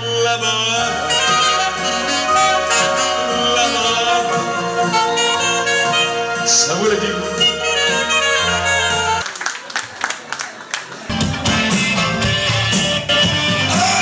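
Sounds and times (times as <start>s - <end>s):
keyboard backing: 0.0s - 9.2s, 10.9s - 14.0s
saxophone melody: 0.0s - 9.3s, 11.1s - 14.0s
low bass notes: 11.1s - 14.0s.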